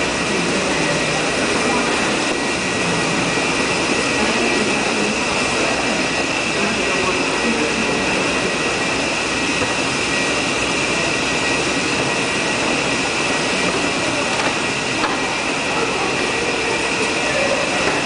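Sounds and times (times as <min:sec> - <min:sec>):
escalator mechanical rumble: 0:00.0 - 0:18.0
high mechanical whine: 0:00.0 - 0:18.0.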